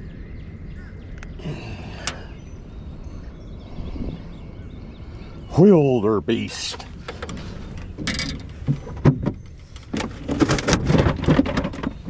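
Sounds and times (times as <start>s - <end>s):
wind rumble on microphone: 0.0s - 12.0s
light clicks and knocks: 6.6s - 12.0s.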